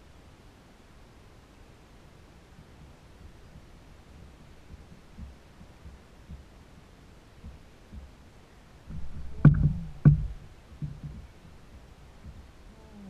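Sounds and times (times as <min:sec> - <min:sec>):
knocks on plastic kayak hull: 0:08.9 - 0:11.3.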